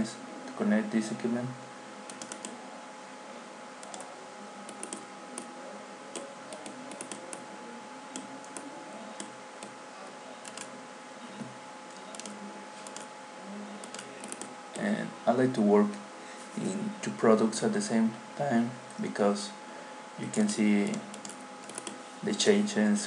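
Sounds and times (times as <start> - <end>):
background hiss: 0.0 - 23.0
faint whining tones: 0.0 - 23.0
keyboard and mouse clicks: 2.1 - 2.6, 4.7 - 5.5, 6.1 - 7.4, 10.4 - 10.7, 13.8 - 14.5, 20.3 - 22.0.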